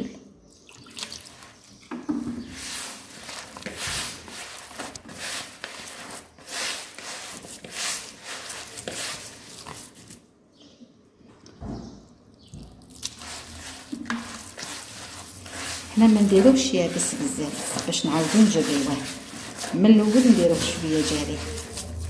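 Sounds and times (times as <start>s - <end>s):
hand mixing dough in plastic bowl: 0.8s - 10.3s, 12.4s - 22.0s.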